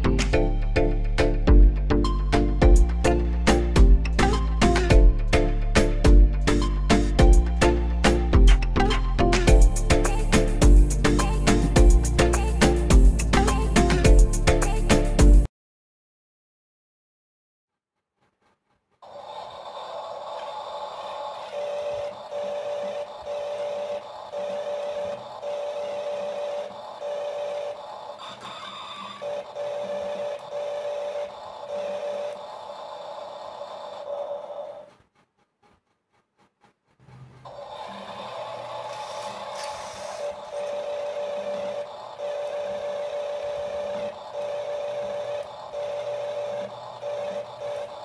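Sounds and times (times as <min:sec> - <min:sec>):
electric motor and gearbox whining: 0:21.4 - 0:35.0, 0:37.0 - 0:48.0.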